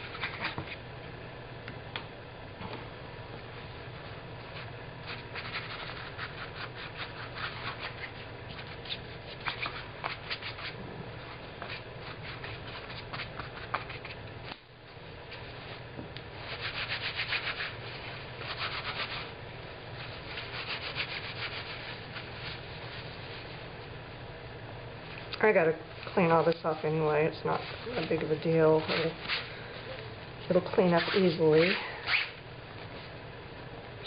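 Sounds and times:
paintbrush scrubbing cloth: 4.4 - 14.2, 16.4 - 19.3, 20.0 - 23.5.

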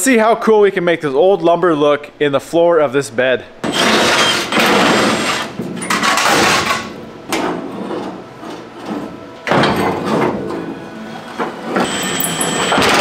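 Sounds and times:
impact tool running in bursts: 3.6 - 7.0, 11.8 - 13.0.

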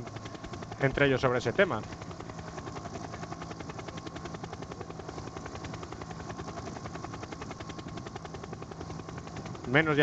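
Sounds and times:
helicopter rotor chopping: 0.0 - 10.0.

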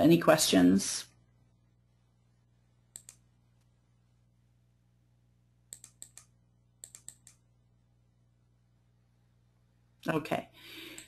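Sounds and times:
low steady hum: 0.0 - 11.0
computer keyboard keys clicking: 5.8 - 7.4.

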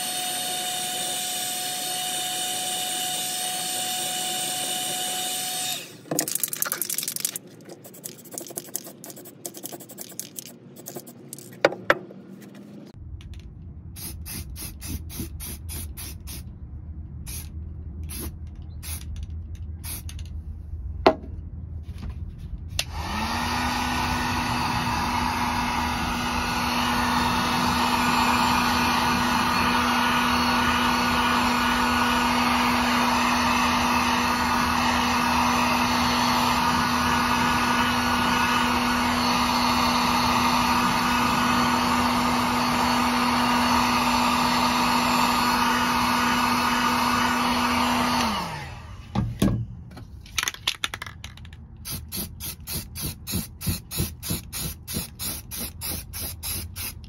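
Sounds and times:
heat gun blowing air: 0.0 - 6.0, 14.0 - 16.4, 17.3 - 17.5, 22.8 - 49.1, 51.8 - 57.0
aerosol can spraying: 6.3 - 11.5, 14.0 - 16.4, 17.3 - 17.5, 18.1 - 19.1, 19.8 - 20.2, 51.8 - 57.0.

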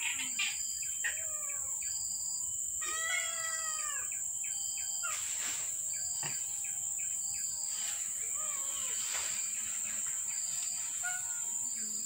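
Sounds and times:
cats meowing: 1.0 - 1.8, 2.8 - 4.2, 8.3 - 9.1.

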